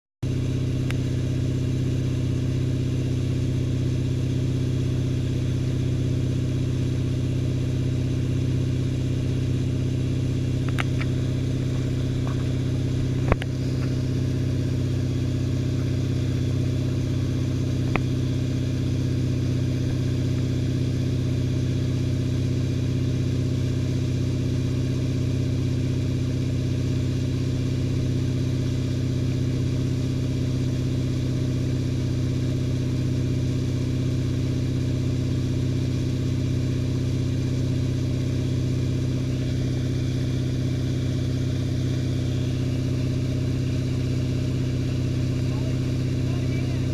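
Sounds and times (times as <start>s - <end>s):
boat engine droning: 10.7s - 18.6s, 44.6s - 46.9s.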